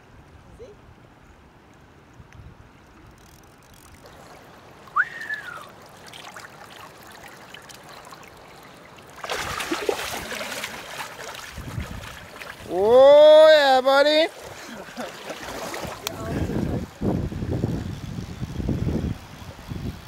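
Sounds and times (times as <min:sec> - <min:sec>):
river water trickling: 0:00.0 - 0:20.0
fish splashing in water: 0:03.9 - 0:12.9, 0:14.3 - 0:16.2.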